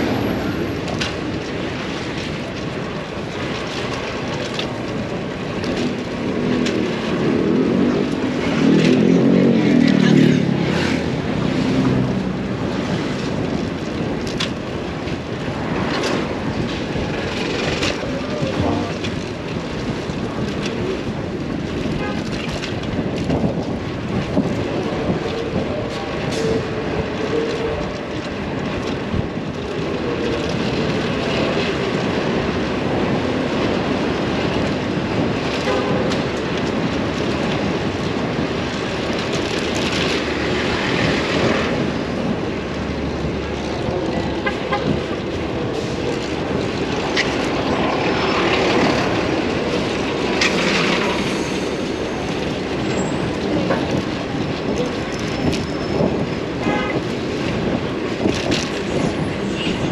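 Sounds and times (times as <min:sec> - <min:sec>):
city street traffic: 0:00.0 - 0:59.9.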